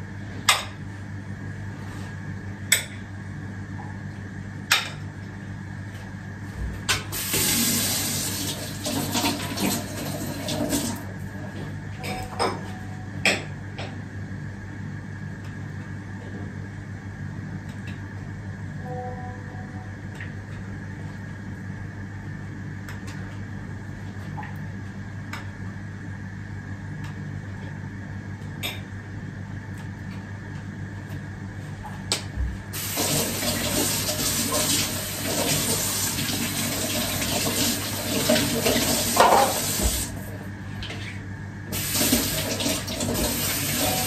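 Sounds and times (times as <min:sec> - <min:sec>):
tap running into sink: 0:37.2 - 0:40.2.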